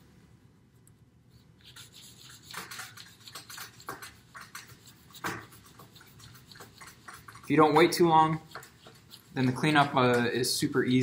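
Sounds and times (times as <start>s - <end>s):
paper towel scrubbing a tabletop: 1.6s - 10.0s.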